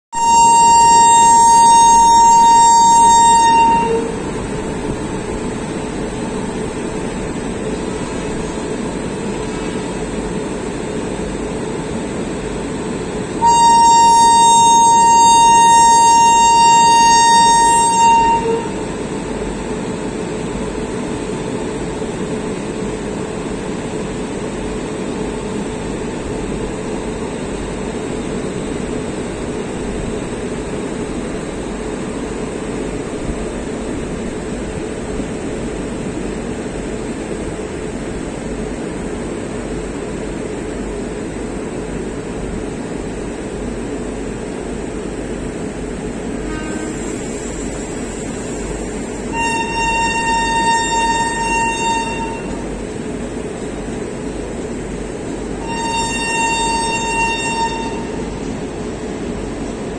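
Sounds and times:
locomotive horn blast: 0:00.2 - 0:05.6, 0:13.4 - 0:19.0, 0:46.4 - 0:47.7, 0:49.2 - 0:52.8, 0:55.6 - 0:58.3
train rumbling: 0:00.2 - 0:59.9.

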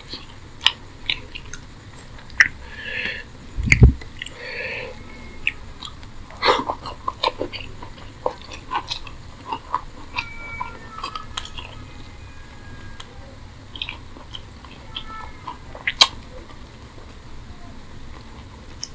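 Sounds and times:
chewing: 0:00.0 - 0:18.9
wet mouth clicks: 0:00.2 - 0:04.4.

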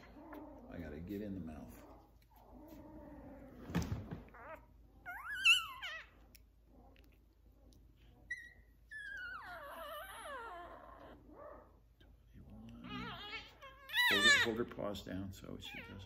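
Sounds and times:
puppy crying: 0:04.2 - 0:07.1, 0:08.1 - 0:11.9, 0:12.6 - 0:16.0.

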